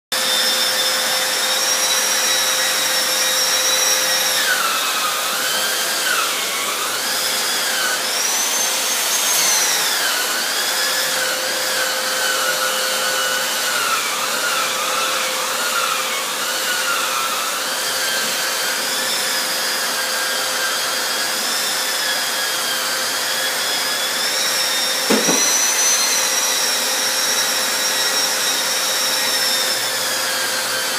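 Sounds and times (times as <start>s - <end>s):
wall sander motor whirring: 0.2s - 30.9s
single knock: 25.1s - 25.5s.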